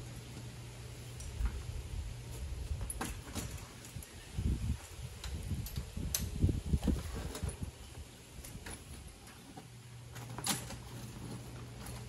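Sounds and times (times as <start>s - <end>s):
bike trailer frame clicks and knocks: 2.8s - 4.1s, 8.4s - 12.0s.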